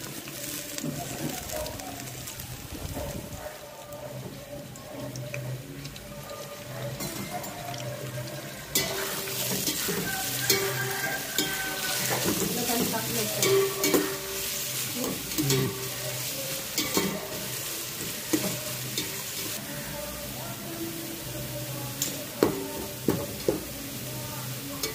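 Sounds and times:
onions sizzling in hot oil: 0.0s - 24.9s
metal spoon scraping a pot: 8.5s - 14.5s.

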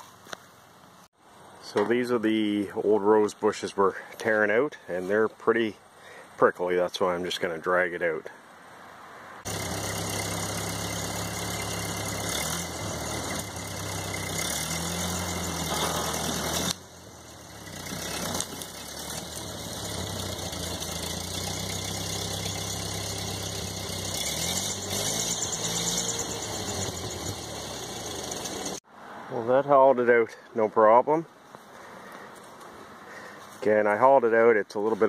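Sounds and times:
tractor engine running: 9.4s - 28.8s.

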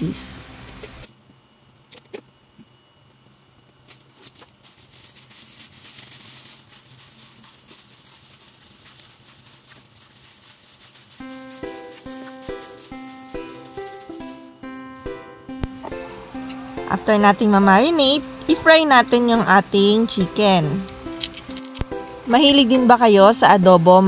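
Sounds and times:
plastic glove crinkling: 3.1s - 23.6s
wet squishing of chicken in marinade: 4.9s - 14.4s
background music: 11.2s - 24.0s.

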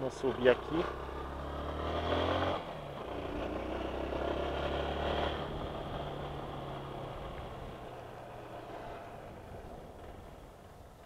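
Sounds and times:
motorcycle engine pulling uphill: 0.0s - 11.0s.

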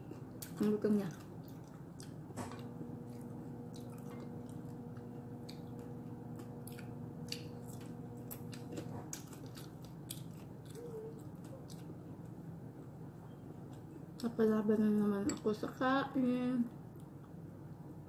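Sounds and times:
person chewing crispy food: 0.0s - 13.0s.

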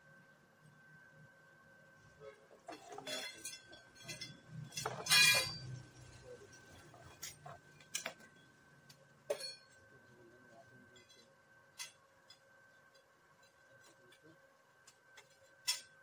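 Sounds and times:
faint steady whine: 0.0s - 16.0s
metal tools clinking and knocking: 2.7s - 5.8s, 9.3s - 9.8s.

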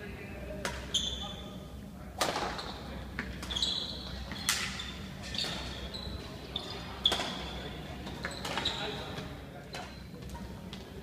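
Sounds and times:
shoes squeaking on floor: 0.9s - 1.6s, 2.5s - 10.2s.

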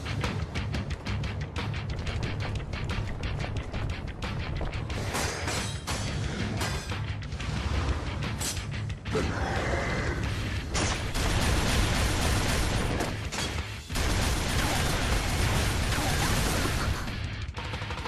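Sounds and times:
pulsing low bass: 0.0s - 5.1s.

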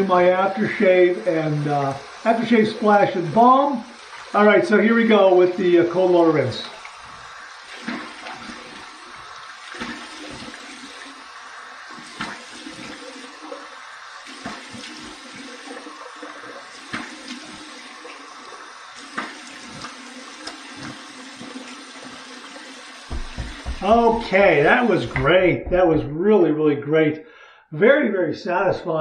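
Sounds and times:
tap water running: 0.0s - 26.1s
water splashing on face: 23.0s - 26.0s.

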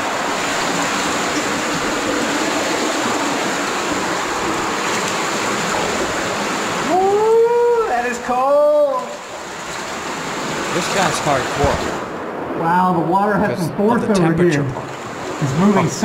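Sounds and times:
cave stream running: 0.0s - 16.0s.

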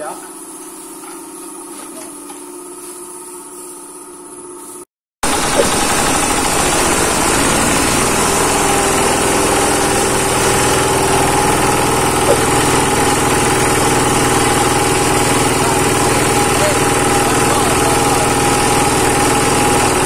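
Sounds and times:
grinding mill running: 5.2s - 20.0s.

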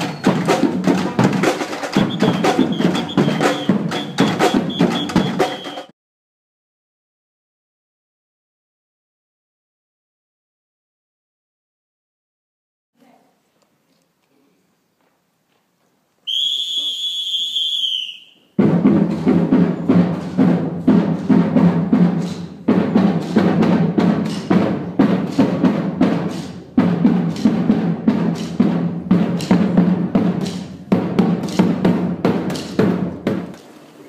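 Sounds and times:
whistle blast: 0.0s - 0.6s, 1.9s - 5.9s, 16.3s - 18.6s
drumming ensemble: 0.0s - 5.9s, 18.5s - 33.8s.

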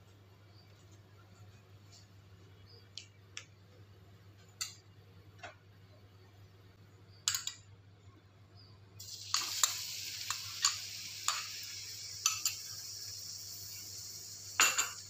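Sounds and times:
low steady hum: 0.0s - 9.5s
hot oil popping: 9.0s - 15.0s.

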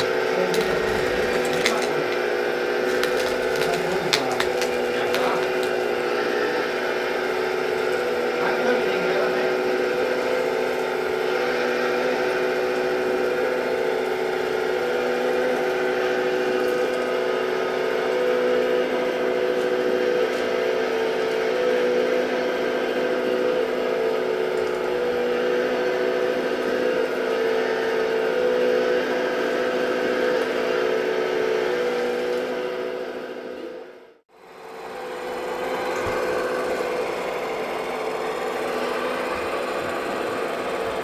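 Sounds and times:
hydraulic pump whining: 0.0s - 41.0s.

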